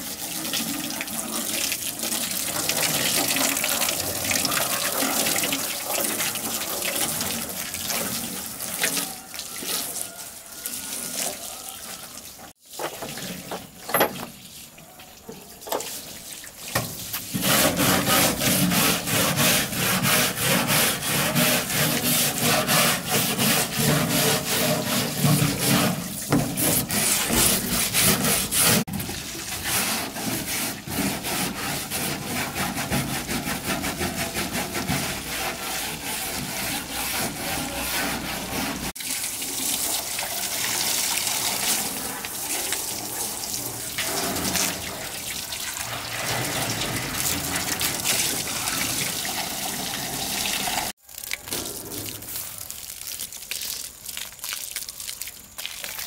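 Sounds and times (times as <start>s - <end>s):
garden hose spraying water: 0.0s - 56.0s
stiff brush scrubbing metal: 15.4s - 39.0s, 41.4s - 49.1s.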